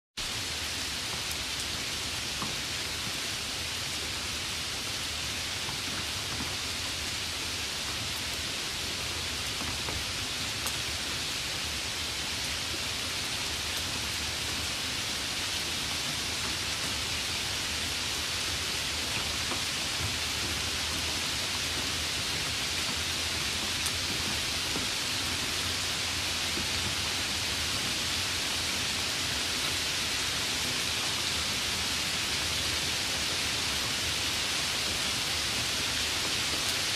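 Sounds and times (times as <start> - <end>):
steady rainfall: 0.2 - 36.9.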